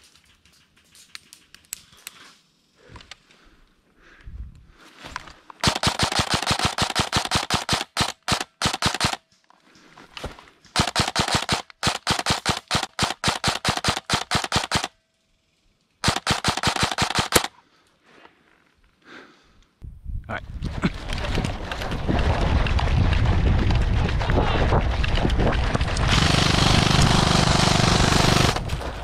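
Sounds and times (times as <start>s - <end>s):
airsoft rifle firing full auto: 5.6s - 9.2s, 10.8s - 14.9s, 16.0s - 17.5s, 26.1s - 28.7s.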